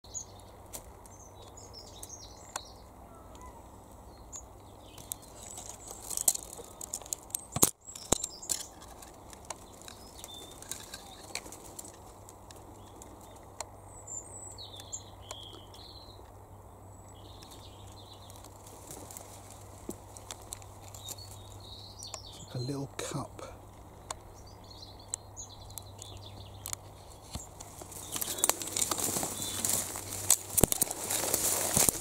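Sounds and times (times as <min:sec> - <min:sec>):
birds chirping: 0:00.0 - 0:32.0
faint outdoor background noise: 0:00.0 - 0:32.0
light clicks and rustling: 0:04.9 - 0:13.7, 0:18.3 - 0:22.3, 0:25.0 - 0:32.0.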